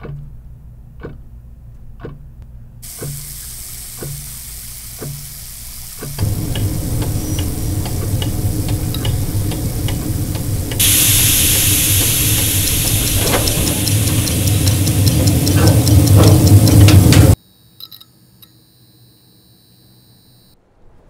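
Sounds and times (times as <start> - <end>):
hiss: 2.8 - 17.4
loud sizzling hiss: 2.8 - 17.4
machine hum with fast clicking: 2.8 - 18.1
alarm clock ticking: 6.0 - 17.4.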